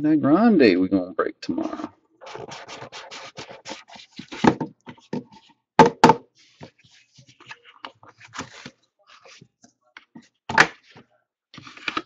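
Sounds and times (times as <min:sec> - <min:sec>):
box knocking on table: 0:05.8 - 0:06.2.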